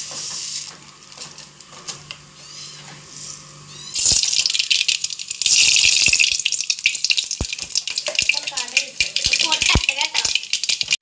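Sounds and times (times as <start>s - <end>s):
mustard seeds sizzling in hot oil: 0.0s - 2.3s, 3.1s - 11.0s
seeds popping and spluttering: 4.0s - 11.0s.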